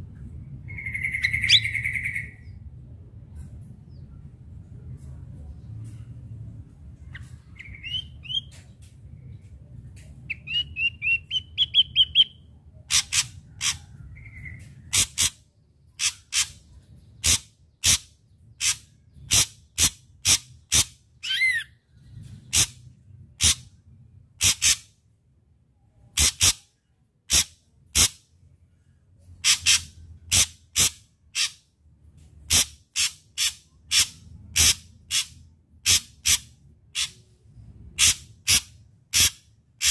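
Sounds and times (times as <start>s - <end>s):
bird singing sharp calls: 0.6s - 2.6s, 7.0s - 8.8s, 10.3s - 23.7s, 32.5s - 37.3s.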